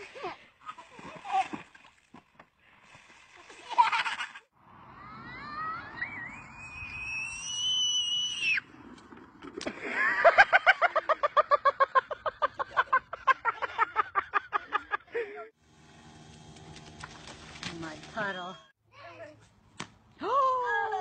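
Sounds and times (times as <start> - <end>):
high-pitched laughter: 3.7 - 4.5
child screaming: 5.0 - 8.6.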